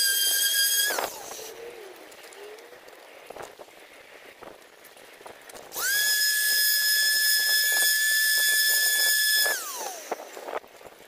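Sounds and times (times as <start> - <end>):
orbital sander motor whine: 0.0 - 1.5, 5.7 - 10.6.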